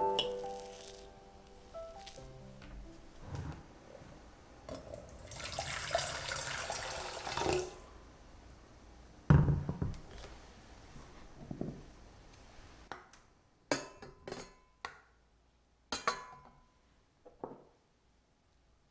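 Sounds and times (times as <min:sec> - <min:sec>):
hot water pouring into pot: 0:04.9 - 0:07.9.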